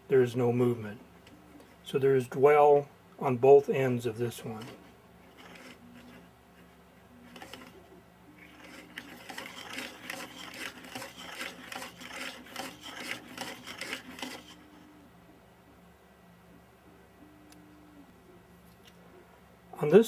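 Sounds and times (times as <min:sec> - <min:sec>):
plastic parts scraping and clicking: 0:04.4 - 0:06.2, 0:07.3 - 0:07.8, 0:08.4 - 0:14.6.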